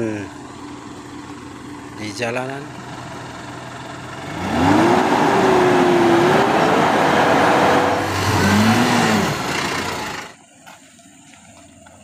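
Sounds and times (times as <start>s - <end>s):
truck engine revving: 2.9s - 10.4s.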